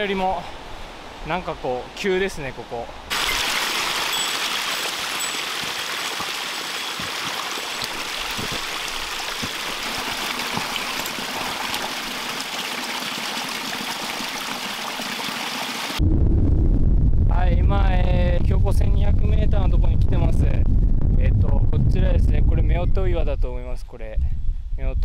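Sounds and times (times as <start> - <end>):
spring trickling over rocks: 3.1 - 12.8.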